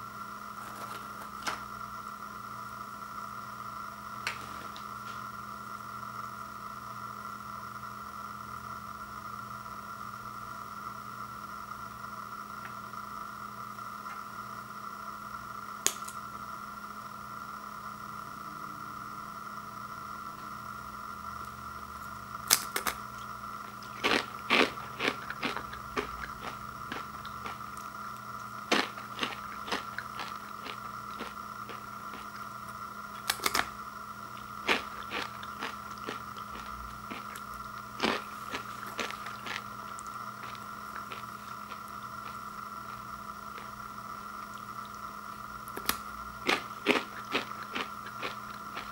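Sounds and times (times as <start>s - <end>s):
steady hum: 0.0s - 48.9s
tortilla chips snapping: 22.4s - 23.0s, 28.7s - 32.3s, 33.2s - 33.7s, 45.7s - 48.9s.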